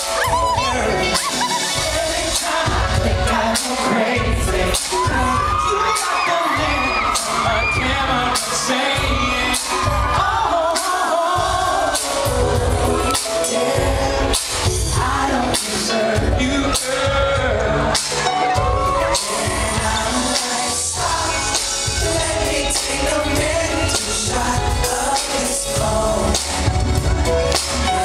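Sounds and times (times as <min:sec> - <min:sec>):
pop music over loudspeakers: 0:00.0 - 0:28.0.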